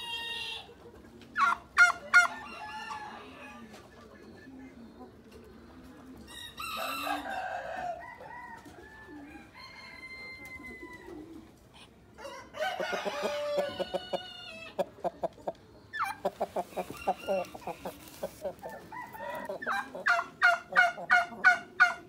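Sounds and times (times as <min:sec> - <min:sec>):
chickens crowing and clucking: 0:00.0 - 0:22.0.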